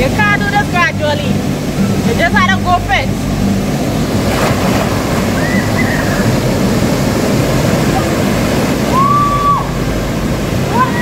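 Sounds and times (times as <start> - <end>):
waterfall rushing over weir: 0.0 - 11.0
person diving into water: 4.0 - 9.6.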